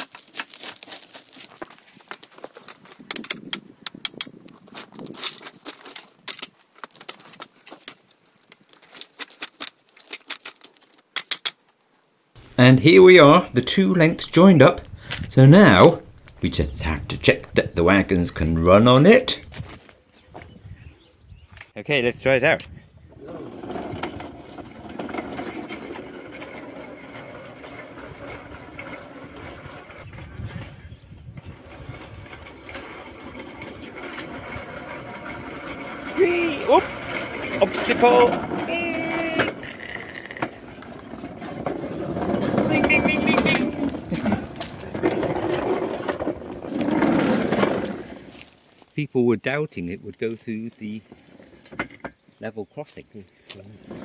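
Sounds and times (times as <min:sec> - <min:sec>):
wagon wheels rattling on rails: 0:00.0 - 0:11.0, 0:23.1 - 0:48.8, 0:50.6 - 0:52.3, 0:53.7 - 0:54.0
stone ballast crunching and clinking: 0:00.0 - 0:11.6.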